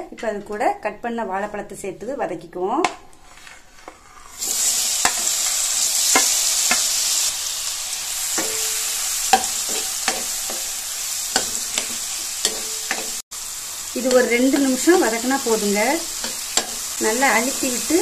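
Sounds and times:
spatula scraping a pan: 0:03.2 - 0:07.3, 0:08.2 - 0:13.2, 0:14.0 - 0:17.0
fruit sizzling in hot fat: 0:03.8 - 0:18.0.

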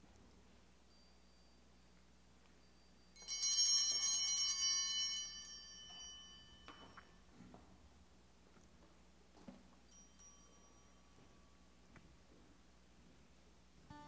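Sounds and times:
altar bells jingling: 0:00.8 - 0:07.3, 0:09.8 - 0:11.8.

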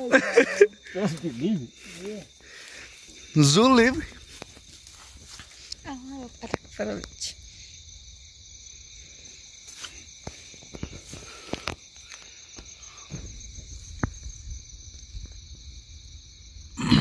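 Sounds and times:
crickets and insects trilling: 0:00.0 - 0:17.0
soft footsteps: 0:03.0 - 0:05.9.

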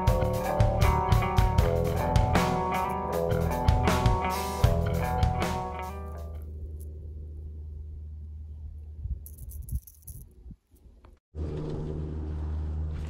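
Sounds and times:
guitar music: 0:00.0 - 0:06.8
low hum: 0:06.0 - 0:13.0
high jingling rattle: 0:09.2 - 0:10.4.

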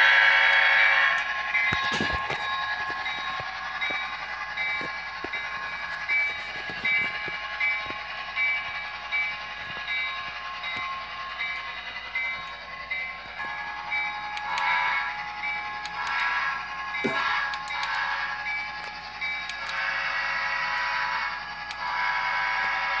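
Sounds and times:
small motor whine: 0:00.0 - 0:23.0
toy train wheels clicking on track: 0:00.0 - 0:23.0
regular pulsing tone: 0:00.7 - 0:21.8.

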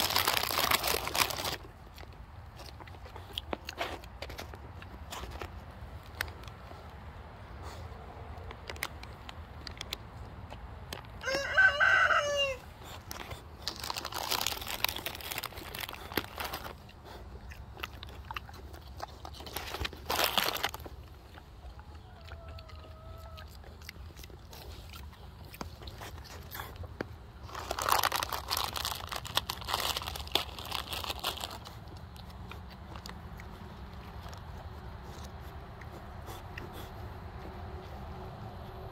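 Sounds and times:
rustling crunching noise: 0:00.0 - 0:38.9
rooster crowing: 0:11.2 - 0:12.7, 0:21.6 - 0:23.6.

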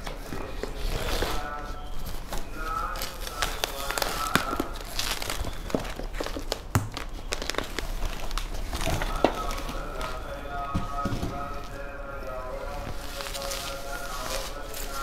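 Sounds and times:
bubble wrap crinkling: 0:00.0 - 0:15.0
cardboard rustling: 0:00.0 - 0:15.0.

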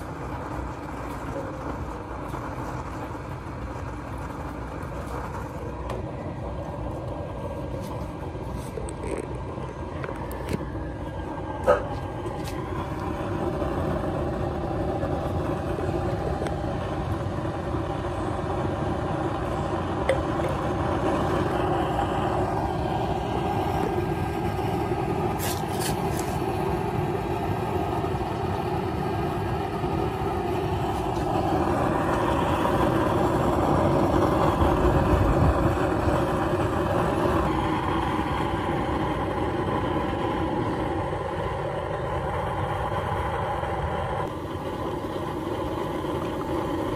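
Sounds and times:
oil burner stove running: 0:00.0 - 0:46.9.

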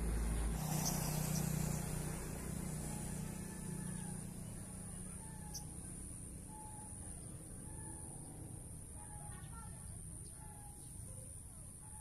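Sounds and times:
vehicle engine passing by: 0:00.0 - 0:08.8.

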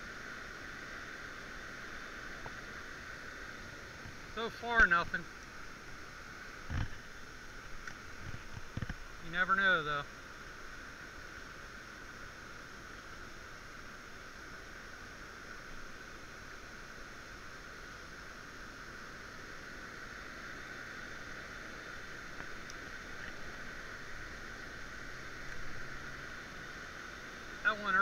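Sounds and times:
faint ticks: 0:07.8 - 0:09.1, 0:22.2 - 0:23.5, 0:25.4 - 0:25.8.

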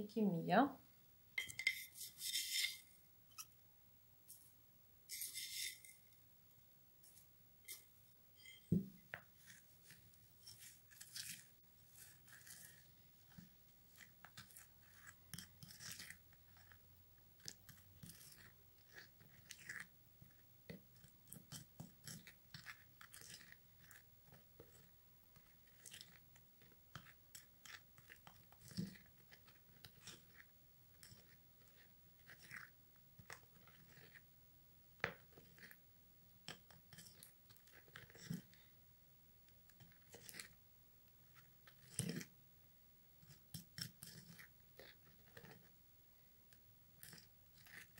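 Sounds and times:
spatula scraping glass bowl: 0:01.4 - 0:03.5, 0:05.1 - 0:06.1, 0:08.4 - 0:16.8, 0:36.9 - 0:38.5, 0:39.9 - 0:40.6, 0:41.3 - 0:42.3.

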